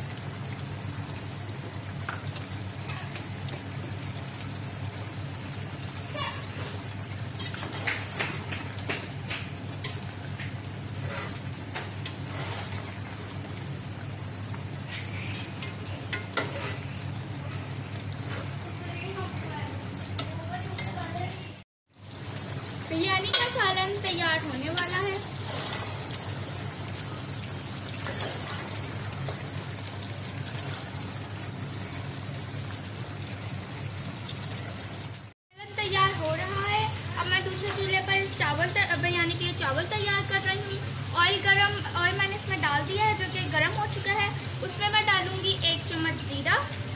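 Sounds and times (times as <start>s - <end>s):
curry bubbling in a pot: 0.0s - 46.9s
ladle scraping metal pot: 11.0s - 13.0s, 15.2s - 16.9s.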